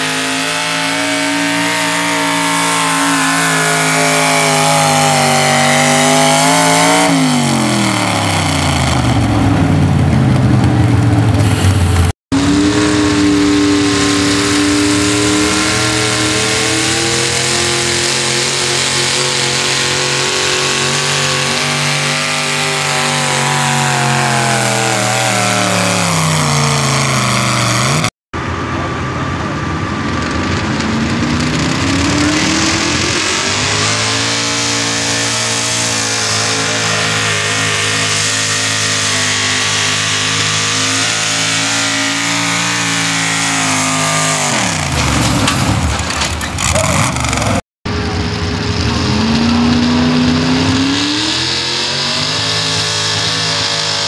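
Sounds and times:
truck engine at high revs: 0:00.0 - 0:54.0.

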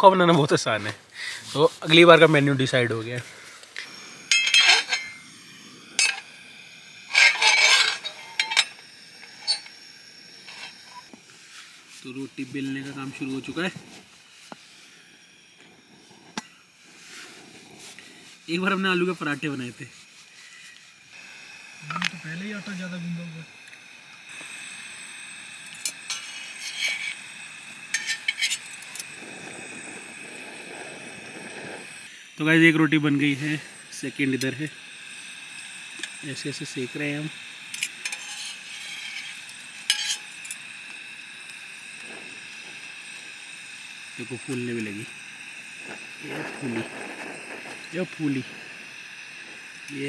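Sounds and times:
gas stove burner hiss: 0:00.0 - 0:50.0
metallic clinks with ringing: 0:04.3 - 0:05.2
scraping rattle of griddle: 0:04.3 - 0:05.2, 0:07.0 - 0:09.8, 0:10.4 - 0:11.8, 0:25.7 - 0:32.0, 0:36.0 - 0:40.6, 0:45.8 - 0:50.0
metal spatula scraping and tapping: 0:07.1 - 0:08.7, 0:27.9 - 0:28.7, 0:37.8 - 0:40.4.

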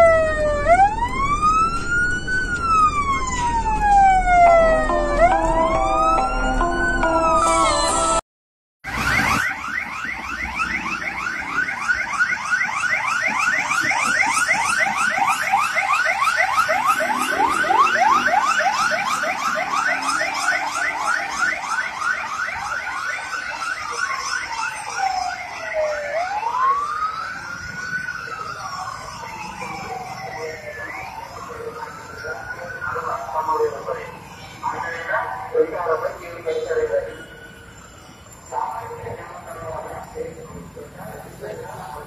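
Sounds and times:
police siren yelp and wail: 0:00.0 - 0:08.2, 0:08.8 - 0:42.0.

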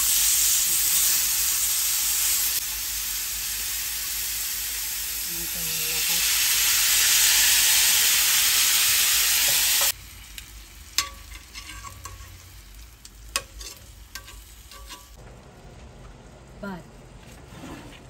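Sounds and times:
marinade sizzling in skillet: 0:00.0 - 0:16.4
metal tongs clicking on pan: 0:10.4 - 0:12.4, 0:13.0 - 0:15.1.

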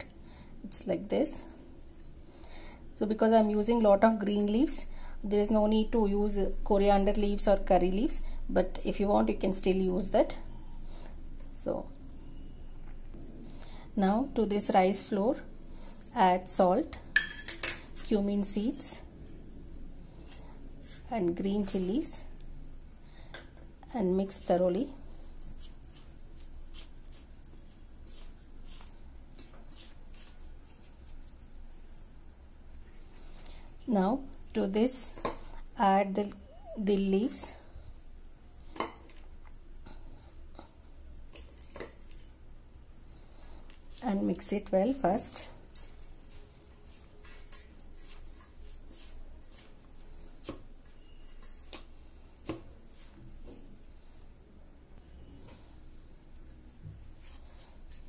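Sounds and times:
fingers stirring flour in bowl: 0:24.3 - 0:31.5, 0:45.2 - 0:53.7
hand mixing flour in metal bowl: 0:24.3 - 0:31.6.

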